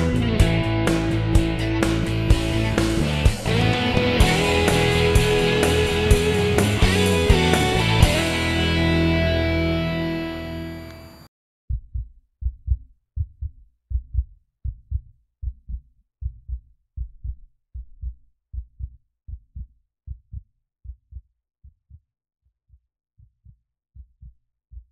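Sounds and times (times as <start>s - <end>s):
guitar rock music: 0.0s - 11.2s
heartbeat thumps: 0.1s - 8.2s, 11.7s - 21.3s.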